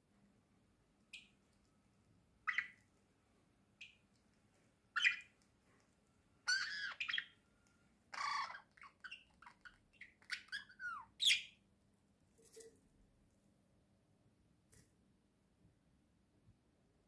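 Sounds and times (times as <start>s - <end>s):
budgerigars chirping and squawking: 2.5s - 2.8s, 5.0s - 5.3s, 6.5s - 7.4s, 8.1s - 11.5s.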